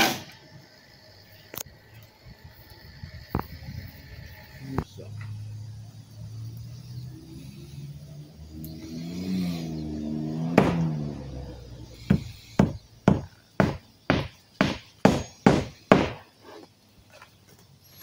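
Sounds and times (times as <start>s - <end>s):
hammer striking nails: 10.6s - 10.8s, 12.1s - 16.2s.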